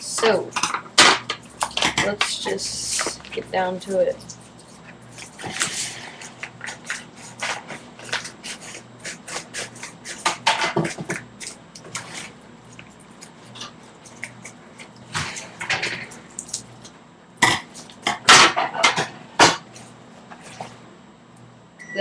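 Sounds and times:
packaging rustling and crinkling: 4.4s - 9.8s.

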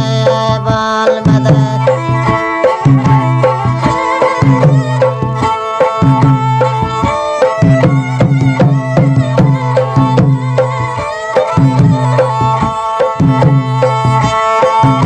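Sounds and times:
drum strokes: 0.0s - 15.0s
instrumental melody over held tone: 0.0s - 15.0s.

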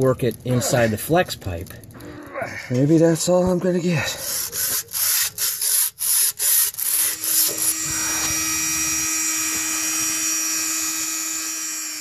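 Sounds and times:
hand sanding rusty metal pipe: 4.1s - 11.2s
rotary tool whining: 4.1s - 12.0s.

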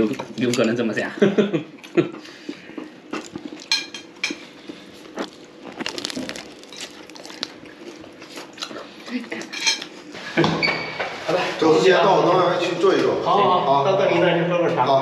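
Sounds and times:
chopsticks and spoons clinking on plates: 0.0s - 1.0s, 3.2s - 4.5s, 9.4s - 10.0s.

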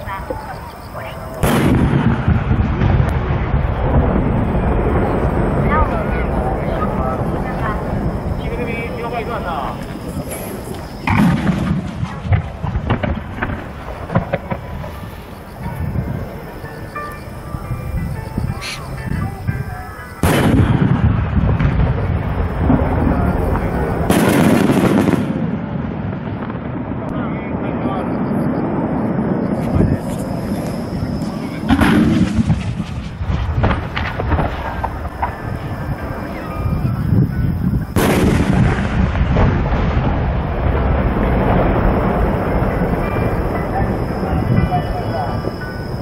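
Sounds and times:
firework shells booming: 0.0s - 18.8s, 20.0s - 46.0s
rumbling echo: 0.0s - 46.0s
firework shell bang: 20.2s - 21.8s.

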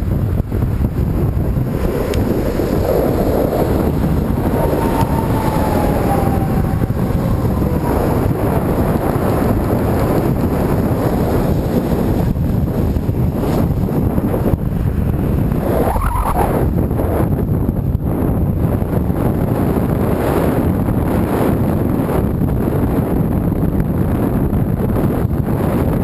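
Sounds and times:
passing vehicle whine: 0.0s - 17.2s
wind buffeting microphone: 0.0s - 26.0s.

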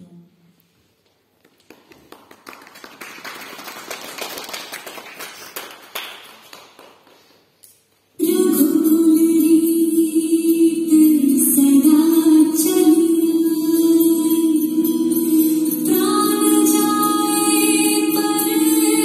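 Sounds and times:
audience applause: 1.5s - 7.4s
loud music: 12.7s - 19.0s.

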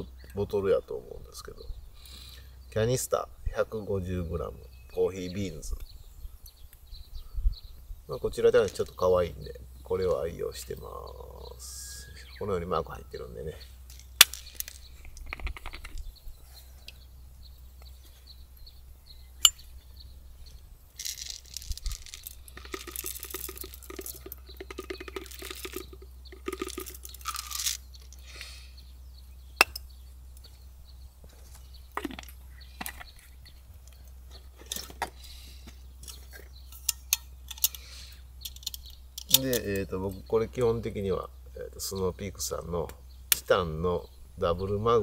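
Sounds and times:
coffee beans pouring rattle: 21.0s - 27.8s.

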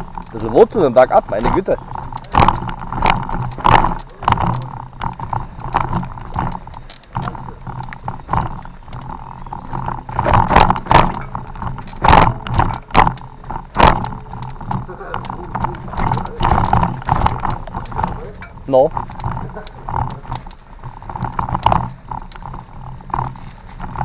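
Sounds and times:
bicycle rattling over roots: 0.0s - 24.0s
steady low rumble: 0.0s - 24.0s.

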